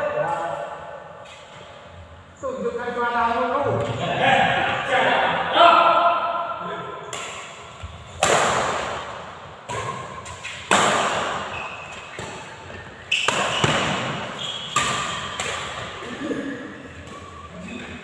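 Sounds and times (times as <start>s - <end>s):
racket striking shuttlecock: 8.2s - 11.5s, 13.1s - 16.0s.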